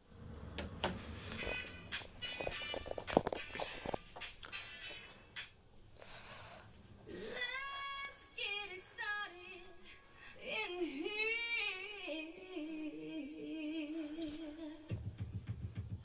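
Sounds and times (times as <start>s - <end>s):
woman singing unaccompanied: 7.1s - 14.9s.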